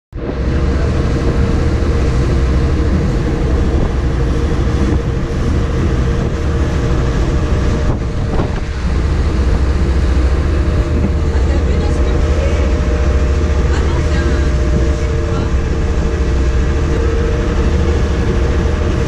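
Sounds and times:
ferry engine droning: 0.1s - 19.0s
water rushing past hull: 0.2s - 19.0s.

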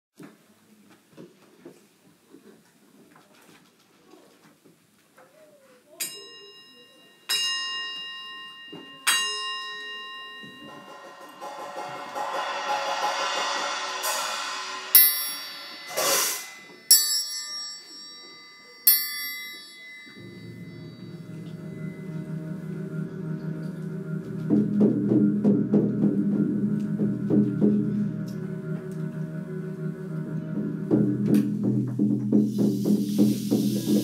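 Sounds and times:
metal percussion ringing: 6.0s - 31.7s
shimmering wash: 9.0s - 31.2s
low droning tone: 20.2s - 31.9s.

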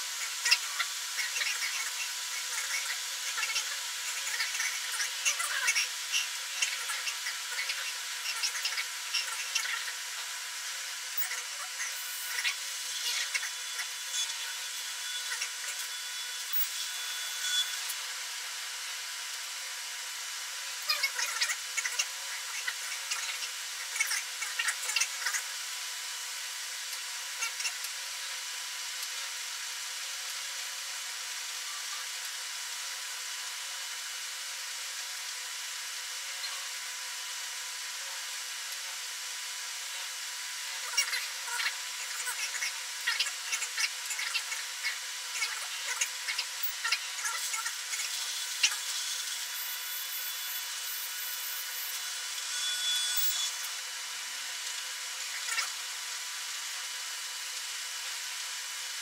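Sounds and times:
motor whir: 0.0s - 25.6s, 40.7s - 55.8s.

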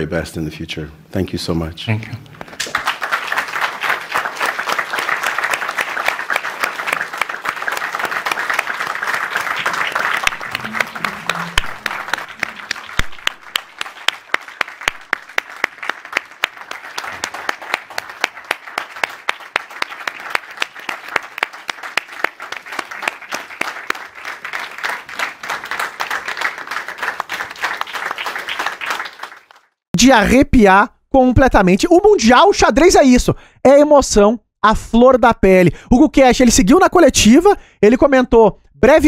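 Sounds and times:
crowd applauding: 2.4s - 29.8s.

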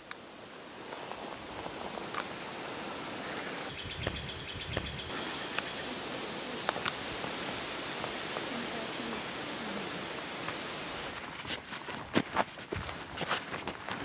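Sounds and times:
grass and leaves rustling: 0.0s - 14.0s
wind on microphone: 1.2s - 11.5s.

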